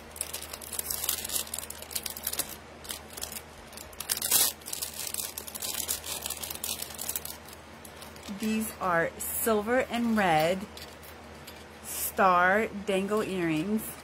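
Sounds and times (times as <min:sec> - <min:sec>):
plastic packaging crinkling: 0:00.0 - 0:08.8, 0:09.8 - 0:11.8.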